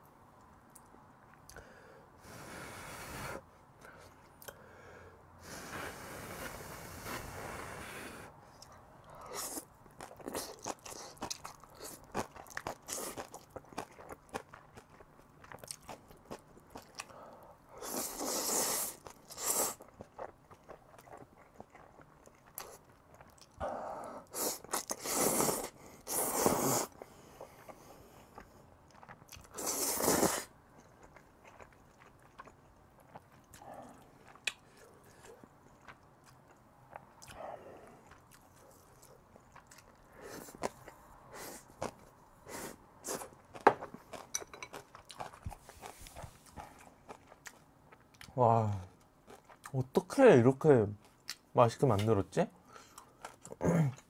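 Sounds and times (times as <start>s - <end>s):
wet chewing and lip smacks: 30.7s - 41.0s.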